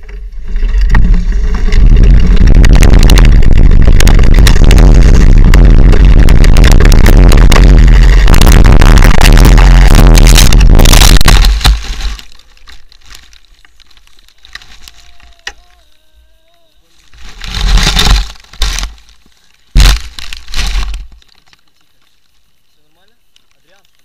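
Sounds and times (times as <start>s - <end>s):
loud bursts of noise: 0.6s - 12.4s, 19.7s - 21.2s
mountain bike crashing into grass: 8.0s - 15.8s, 17.0s - 21.2s
faint rustling: 9.2s - 24.0s.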